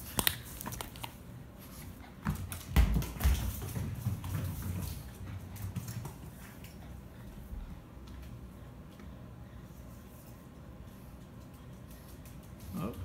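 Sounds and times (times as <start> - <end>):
ball thudding on wooden floor: 2.2 - 5.0.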